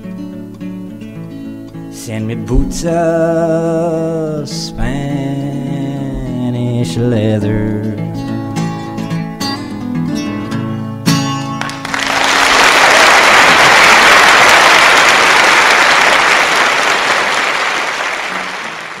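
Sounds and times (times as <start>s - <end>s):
acoustic guitar strum: 0.0s - 11.9s
audience applauding: 11.6s - 19.0s.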